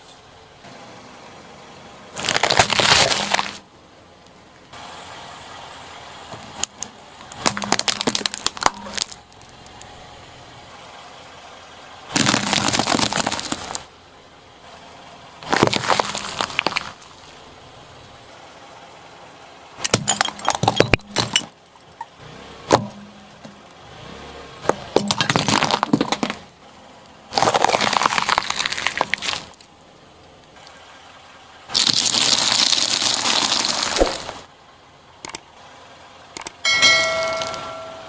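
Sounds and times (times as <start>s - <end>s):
tyre crushing crunchy vegetables: 2.2s - 3.6s, 7.3s - 9.2s, 12.2s - 13.8s, 15.4s - 17.0s, 25.0s - 26.4s, 27.3s - 29.6s, 31.7s - 34.4s
bright chime: 36.6s - 38.0s.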